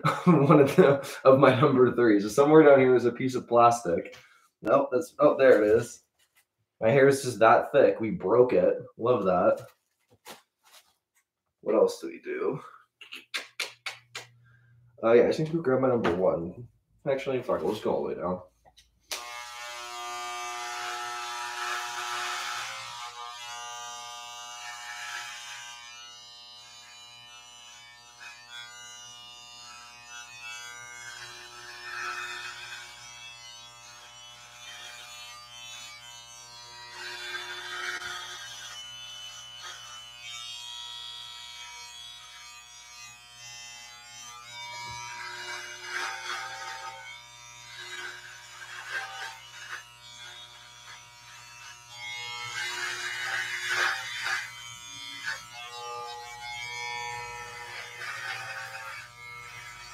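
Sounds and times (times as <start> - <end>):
electric hair clippers buzzing: 19.1 - 59.9.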